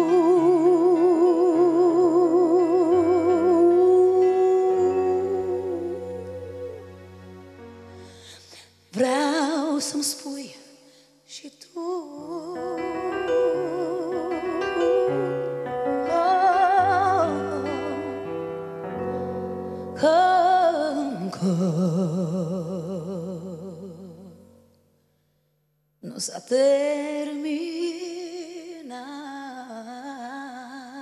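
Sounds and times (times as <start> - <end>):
woman singing with vibrato: 0.0 - 6.9, 8.3 - 18.3, 19.8 - 24.4, 26.0 - 31.0
bass: 0.0 - 8.9
keyboard chords: 12.5 - 20.2.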